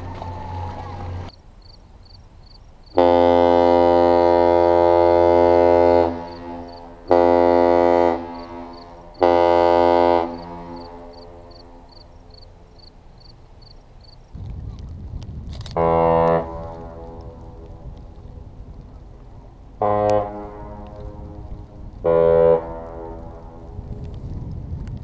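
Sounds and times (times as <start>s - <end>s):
deep ship horn blasts: 3.0s - 12.0s, 15.7s - 17.8s, 19.8s - 23.8s.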